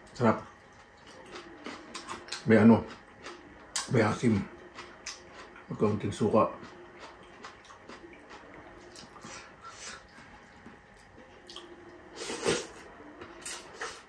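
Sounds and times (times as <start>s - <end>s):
wet chewing and lip smacks: 4.6s - 5.7s, 6.6s - 11.8s.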